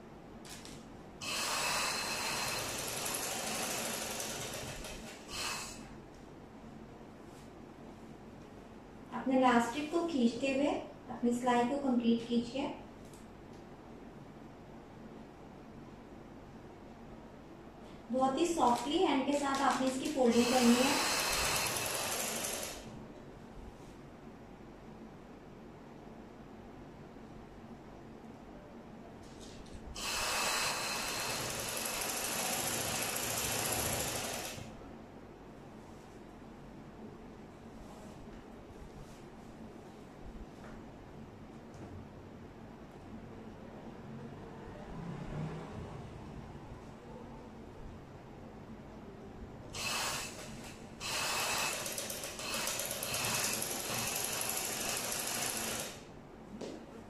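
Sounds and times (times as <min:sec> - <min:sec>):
sewing machine running: 0:01.2 - 0:05.8, 0:18.6 - 0:22.9, 0:30.0 - 0:34.7, 0:49.8 - 0:56.1.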